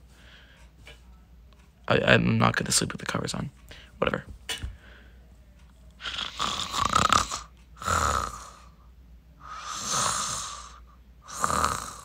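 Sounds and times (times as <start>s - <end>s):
exaggerated comic snoring: 6.0s - 8.7s, 9.4s - 12.0s.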